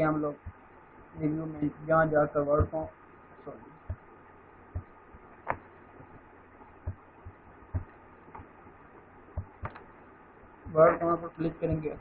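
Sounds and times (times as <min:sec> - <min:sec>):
soft low thumps: 0:00.0 - 0:01.0, 0:01.6 - 0:03.0, 0:03.6 - 0:12.0
low steady hiss: 0:00.0 - 0:12.0
computer mouse clicks: 0:04.8 - 0:05.7, 0:09.4 - 0:09.9.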